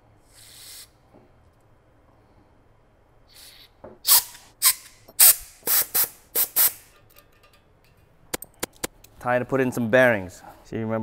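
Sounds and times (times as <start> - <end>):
aerosol spray hissing bursts: 0.3 - 0.9, 5.2 - 6.8.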